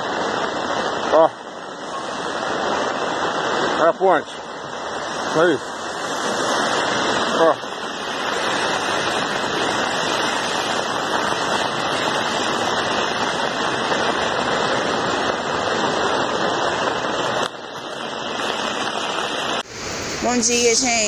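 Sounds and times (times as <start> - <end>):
floodwater rushing down river: 0.0 - 21.0.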